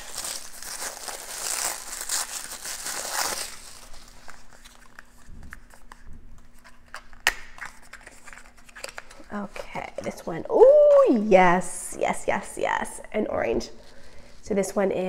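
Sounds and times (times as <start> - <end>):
wrapping paper crinkling and tearing: 0.0 - 9.7.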